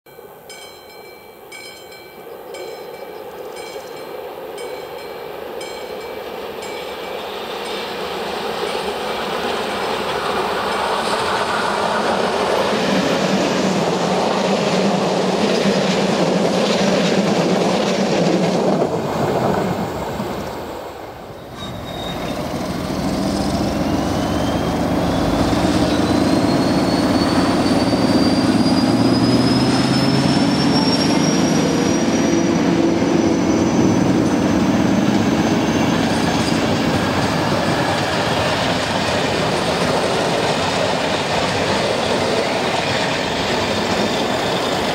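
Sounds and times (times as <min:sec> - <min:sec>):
train wheels rumbling on rails: 0:00.5 - 0:44.9
rising whine: 0:21.4 - 0:38.1.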